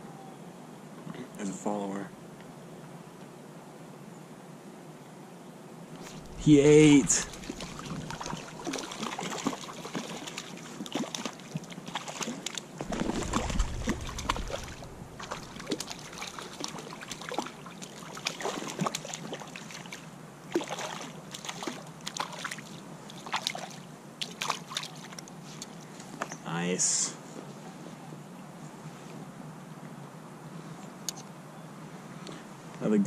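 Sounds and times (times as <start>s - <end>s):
low rumble: 6.0s - 8.7s, 12.8s - 16.7s
water sloshing: 6.0s - 25.2s
fish splashing at the surface: 6.1s - 25.2s.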